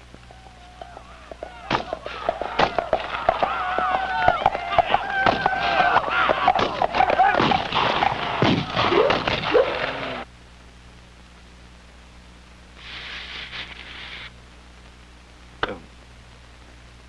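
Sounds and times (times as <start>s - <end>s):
steady low hum: 0.0s - 17.0s
brief hiss: 12.8s - 14.3s.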